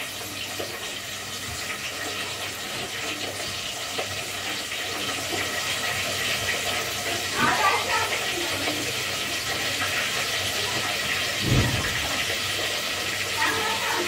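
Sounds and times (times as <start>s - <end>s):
food sizzling in hot oil: 0.0s - 14.0s
oil popping: 8.6s - 13.4s.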